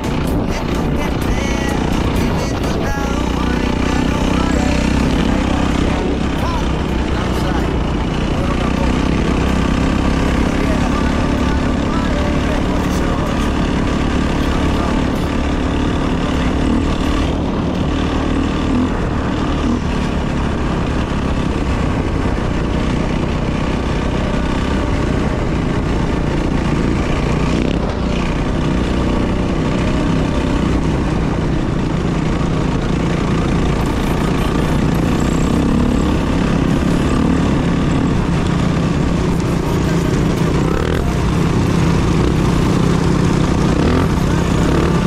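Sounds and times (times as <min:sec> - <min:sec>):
dirt bike engine running: 0:00.0 - 0:45.0.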